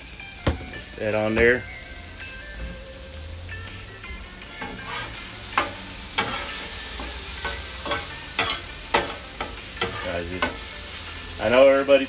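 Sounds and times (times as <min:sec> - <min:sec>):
chicken sizzling on a griddle: 0:00.0 - 0:12.0
metal spatula scraping: 0:04.6 - 0:10.6
spatula clacking on steel plate: 0:05.6 - 0:10.6.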